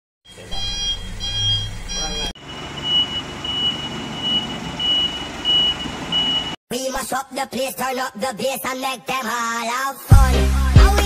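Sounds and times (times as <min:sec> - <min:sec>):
diesel engines idling: 0:00.3 - 0:06.6.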